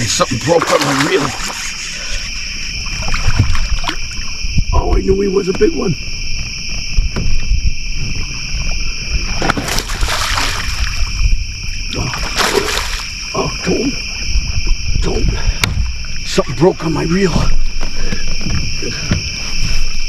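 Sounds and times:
night insects chorus: 0.0 - 20.0
fish splashing at water surface: 0.3 - 2.1, 9.4 - 11.1, 12.1 - 13.2.

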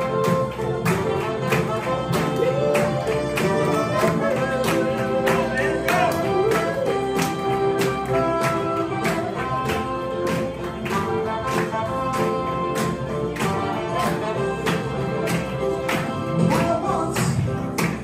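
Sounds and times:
hand claps: 0.0 - 18.0
vocal group singing: 2.0 - 8.0, 16.1 - 17.9.

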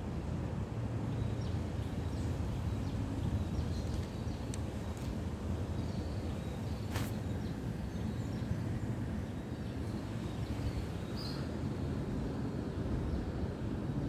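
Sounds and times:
short sharp rustle: 6.9 - 7.3.

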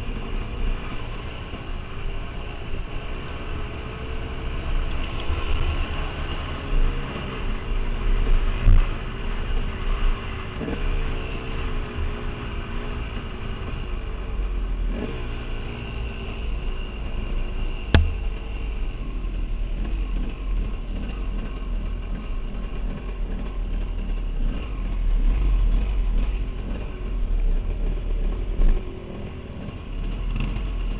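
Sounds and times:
sharp knock: 17.9 - 18.4.

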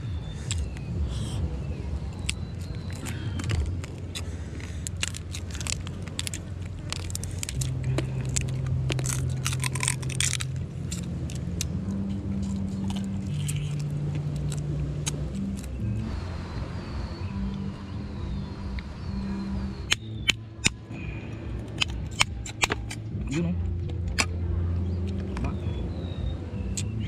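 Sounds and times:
low motor hum: 0.0 - 27.0
crab shells cracking and crunching: 2.1 - 15.8, 19.9 - 20.8, 21.7 - 23.0.

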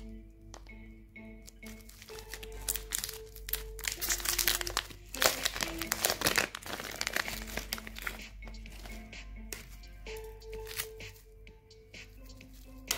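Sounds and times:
plastic wrapper crinkling: 1.4 - 9.0.

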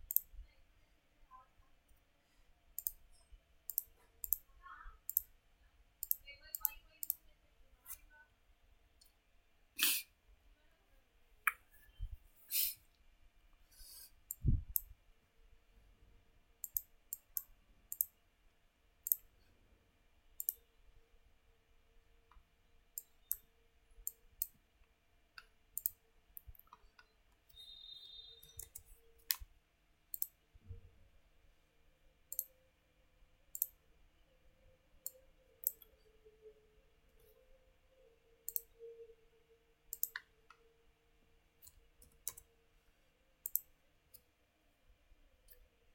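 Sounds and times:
computer mouse buttons clicking: 0.0 - 0.3, 2.8 - 3.1, 3.7 - 5.3, 6.0 - 7.2, 16.6 - 18.2, 19.0 - 19.3, 20.4 - 20.6, 25.4 - 27.6, 28.4 - 29.5, 30.1 - 30.4, 32.3 - 32.5, 33.5 - 33.8, 35.0 - 36.0, 38.4 - 38.7, 39.9 - 40.6, 41.6 - 42.5, 43.4 - 44.2.

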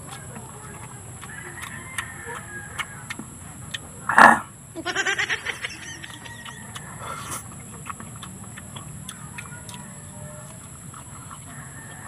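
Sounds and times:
chewing clicks and smacks: 0.0 - 4.3, 5.9 - 12.0.

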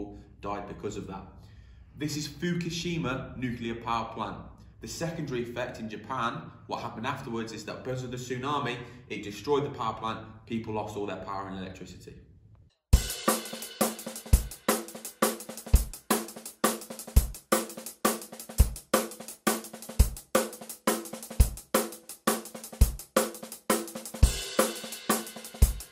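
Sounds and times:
drum kit beat with cymbals: 13.0 - 25.9.

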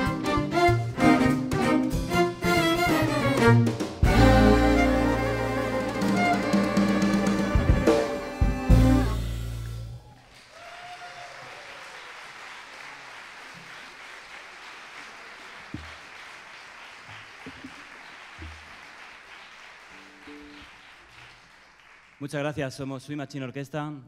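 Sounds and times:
string swing band: 0.0 - 9.7
audience applauding: 4.0 - 22.7.

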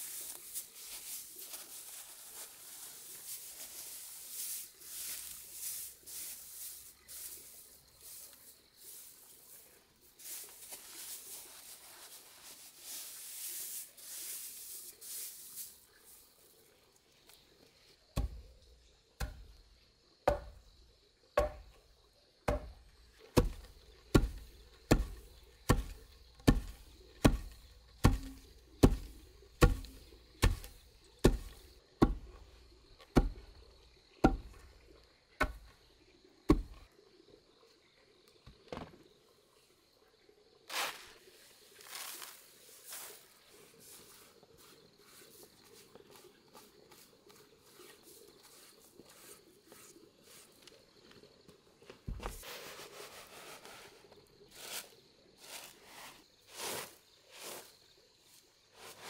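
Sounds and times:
wooden pestle pounding rice: 23.4 - 32.3.

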